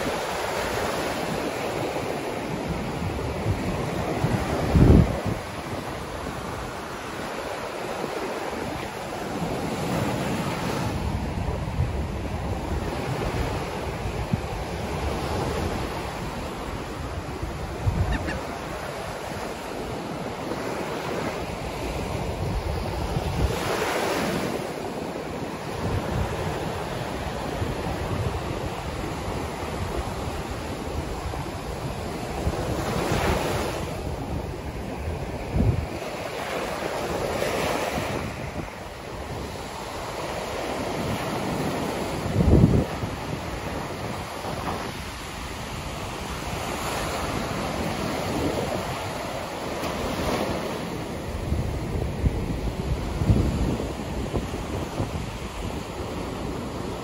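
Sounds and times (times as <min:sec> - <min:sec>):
ocean surf breaking: 0:00.0 - 0:57.0
wind buffeting microphone: 0:00.0 - 0:57.0.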